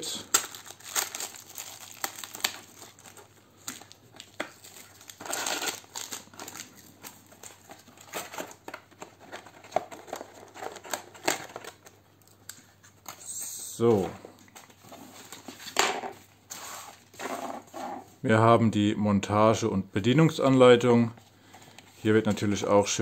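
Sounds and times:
plastic bag crinkling: 0.0s - 11.9s
cardboard rustling: 0.5s - 12.0s.

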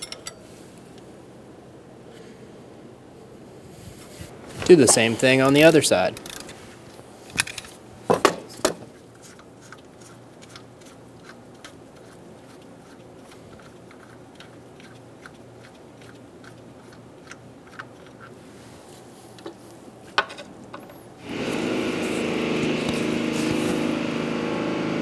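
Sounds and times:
wrench metallic clicks: 0.0s - 0.4s.

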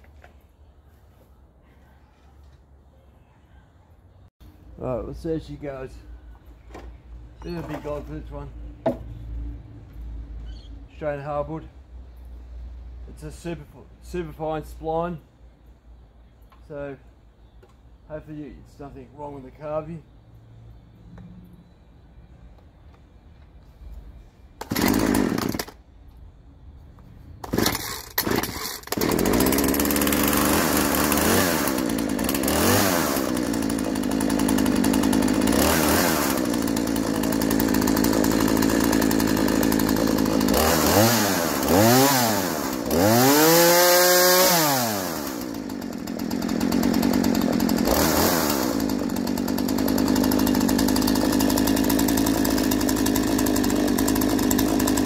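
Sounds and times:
chainsaw engine idling and revving: 24.6s - 25.8s, 27.4s - 55.0s
starter cord pulls: 27.4s - 29.8s.

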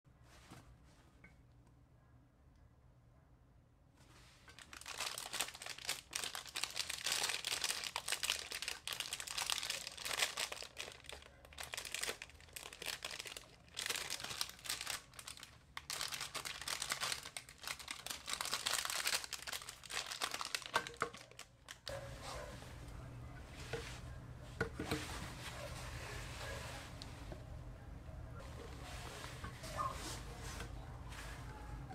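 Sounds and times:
close-up crinkling and crackling: 4.0s - 27.7s.

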